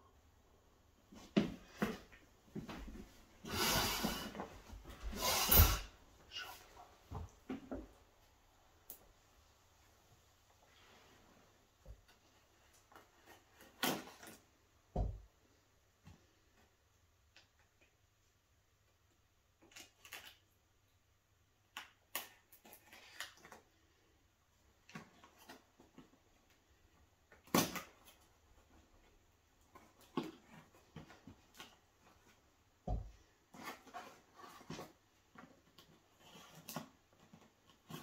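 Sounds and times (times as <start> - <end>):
tape and paper rustling: 19.6 - 20.6.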